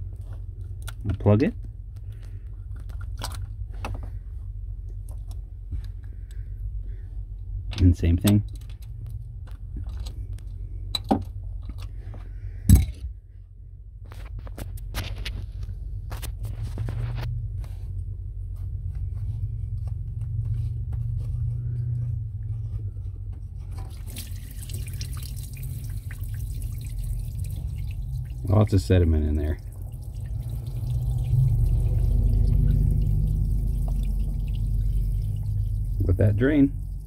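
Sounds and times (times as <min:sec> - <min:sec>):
water streaming out: 0:24.0 - 0:28.7, 0:29.6 - 0:37.0.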